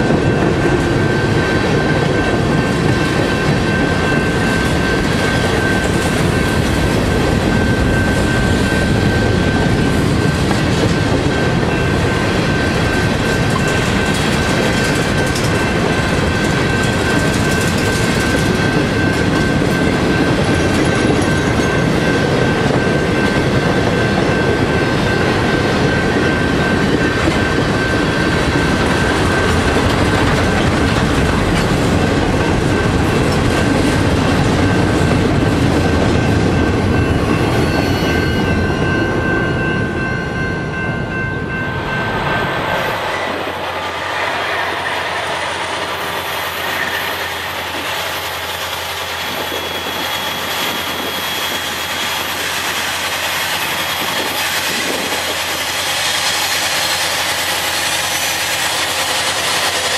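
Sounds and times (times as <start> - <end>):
diesel locomotive approaching: 0.0 - 59.9
freight cars rolling on rails: 0.0 - 59.9
high wheel squeal: 37.0 - 39.4, 41.6 - 59.9.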